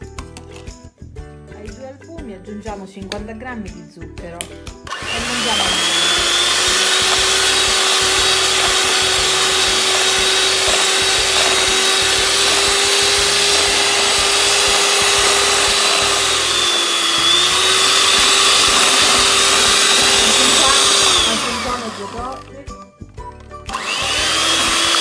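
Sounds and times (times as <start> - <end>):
electric hand mixer running: 4.9 - 22.7, 23.6 - 25.0.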